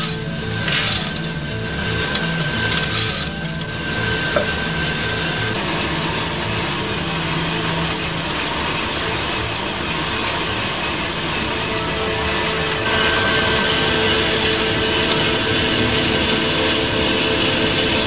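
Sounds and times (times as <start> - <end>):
rhythmic scraping from machine: 0.0 - 18.0
exhaust blower rushing air: 11.5 - 18.0.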